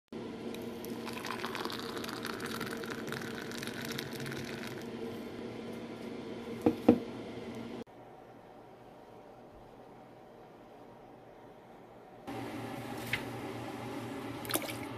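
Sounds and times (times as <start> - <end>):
steady low hum: 0.2 - 14.9
milkshake pouring into a glass: 0.6 - 4.9.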